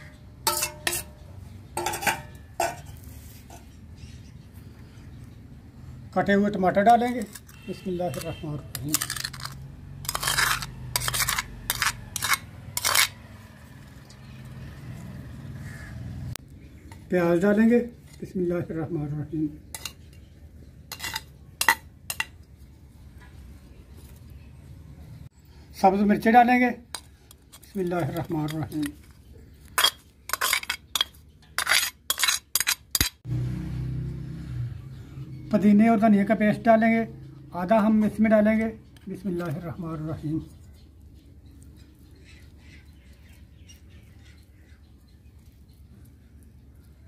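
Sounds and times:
metal spoon scraping clay bowl: 0.0s - 3.9s, 6.7s - 15.2s, 19.6s - 22.6s, 26.2s - 33.3s.

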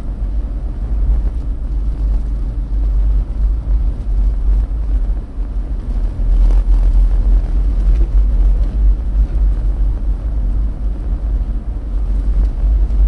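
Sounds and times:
car engine: 0.0s - 13.0s
tyre and road noise: 0.0s - 13.0s.

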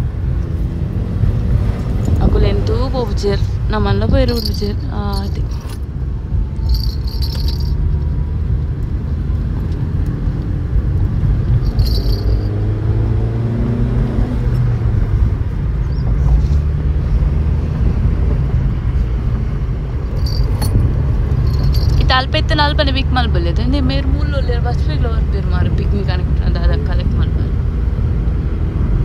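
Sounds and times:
car cabin road rumble: 0.0s - 29.0s
jingling rattles: 4.1s - 5.9s, 6.5s - 8.1s, 11.4s - 12.8s, 20.0s - 23.1s.

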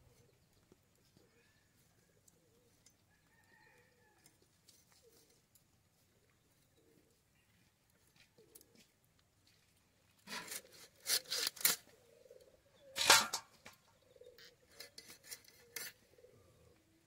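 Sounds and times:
faint bird calls: 0.0s - 4.3s, 10.3s - 13.0s, 13.7s - 17.0s
fish scales scraping on blade: 10.3s - 11.8s, 14.7s - 16.0s.

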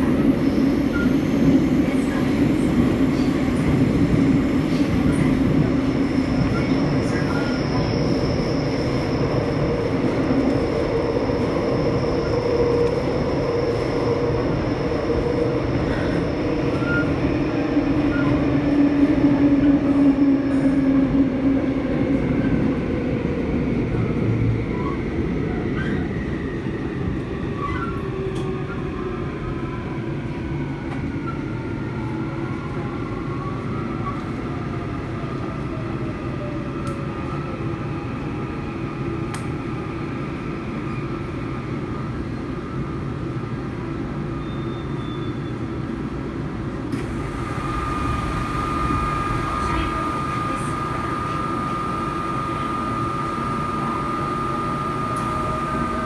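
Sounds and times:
subway train rumble and rail noise: 0.0s - 56.0s.

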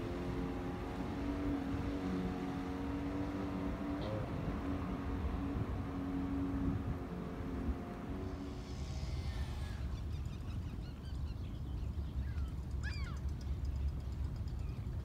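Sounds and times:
watercraft engine droning: 0.0s - 15.0s
wind rumble on microphone: 3.2s - 15.0s
birds calling: 9.0s - 15.0s.

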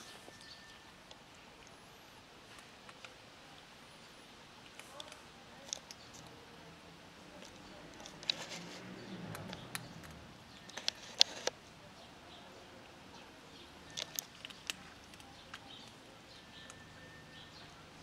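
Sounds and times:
cats crunching dry kibble: 7.3s - 11.6s, 13.8s - 16.8s.

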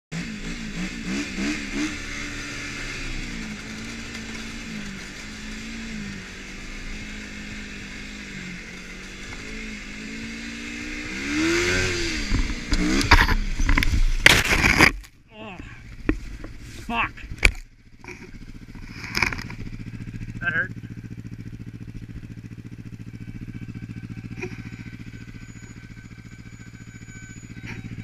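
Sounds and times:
snowmobile engine revving: 0.1s - 14.8s, 22.4s - 28.0s
sled crashing with thumps: 12.4s - 15.1s.

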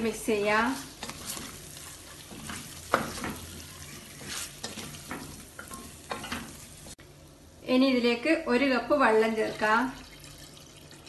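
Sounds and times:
masala sizzling: 0.0s - 11.0s
wooden spatula scraping pot: 0.5s - 6.9s.

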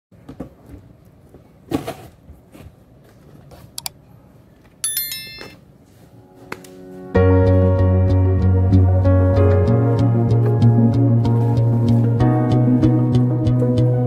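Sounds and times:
bright chime sound effect: 4.8s - 5.6s.

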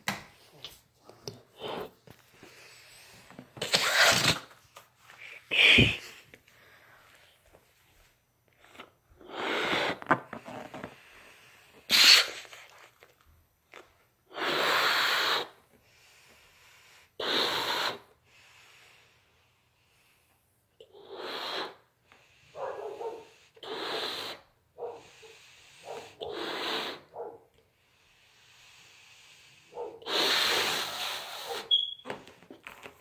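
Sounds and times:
person blowing up balloon: 1.5s - 2.0s, 3.6s - 4.6s, 5.2s - 6.2s, 8.6s - 12.8s, 14.3s - 15.6s, 17.1s - 18.1s, 20.8s - 21.9s, 23.5s - 24.5s, 25.3s - 27.1s, 30.0s - 32.0s.

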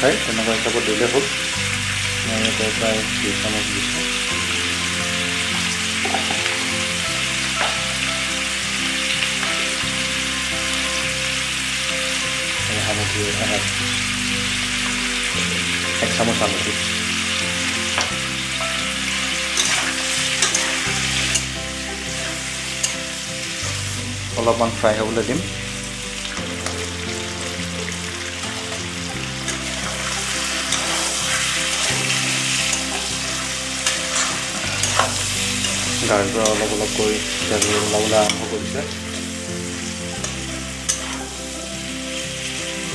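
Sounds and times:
frying hiss: 0.0s - 42.9s
meat sizzling in oil: 0.0s - 42.9s
spatula scraping a pan: 4.5s - 8.5s, 16.7s - 24.2s, 26.2s - 42.5s.

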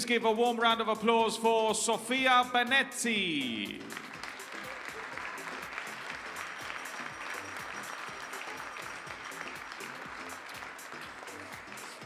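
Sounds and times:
background music: 0.0s - 12.0s
audience applauding: 3.7s - 12.0s.

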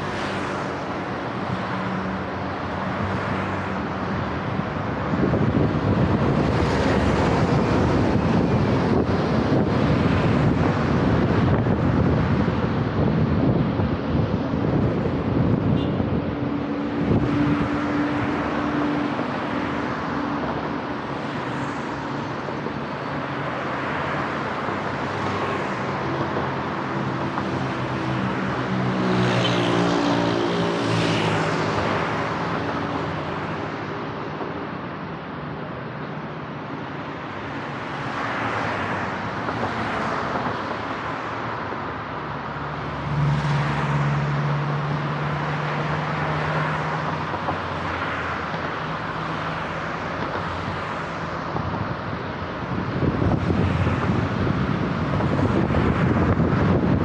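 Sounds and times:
cars driving past: 0.0s - 57.0s
loud car passing close: 42.5s - 57.0s.

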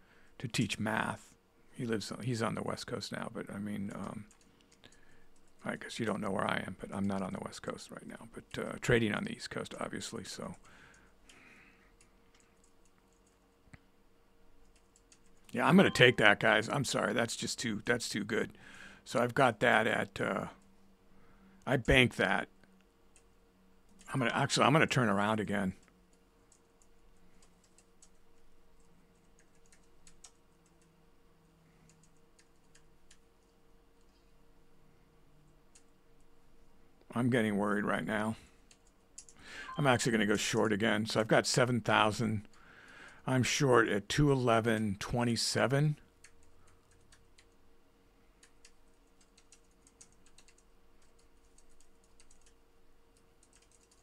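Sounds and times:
faint steady hum: 0.0s - 54.0s
computer keys clicking: 3.9s - 5.7s, 12.0s - 13.8s, 14.6s - 16.0s, 25.8s - 30.9s, 31.8s - 34.2s, 38.7s - 39.4s, 46.1s - 47.6s, 48.4s - 52.6s, 53.2s - 54.0s.

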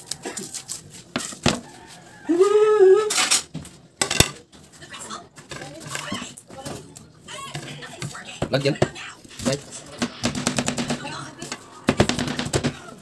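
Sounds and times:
knife knocking and scraping board: 1.1s - 1.7s, 7.6s - 12.8s
person humming: 2.3s - 3.1s.

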